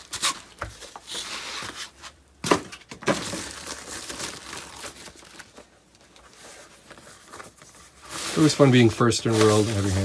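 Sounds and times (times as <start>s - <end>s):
plastic wrapping crinkling: 2.8s - 10.0s.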